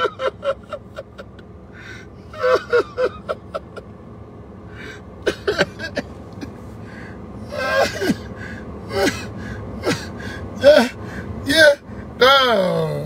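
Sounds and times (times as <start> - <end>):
man laughing: 0.0 - 3.9, 5.2 - 6.6, 7.4 - 11.0.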